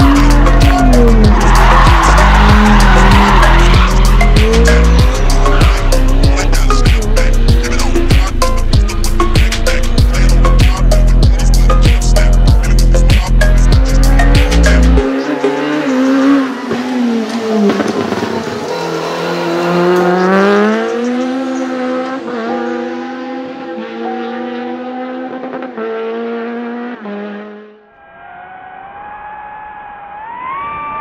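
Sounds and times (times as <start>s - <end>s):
music track: 0.0s - 17.6s
rally car engine accelerating: 0.0s - 27.8s.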